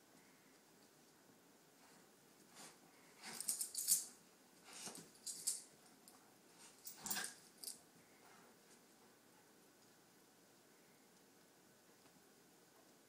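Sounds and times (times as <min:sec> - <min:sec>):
light jingling: 0:03.2 - 0:04.2, 0:04.8 - 0:07.9.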